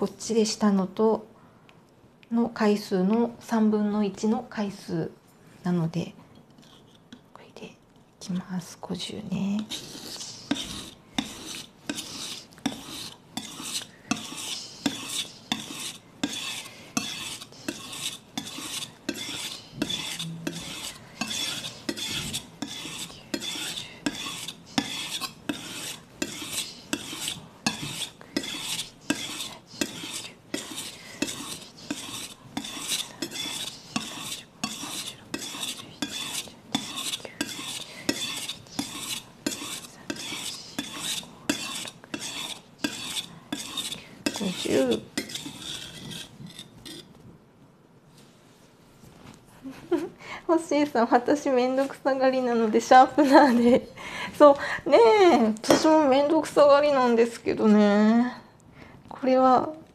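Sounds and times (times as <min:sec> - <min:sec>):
knife scraping on whetstone: 0:09.6 - 0:47.1.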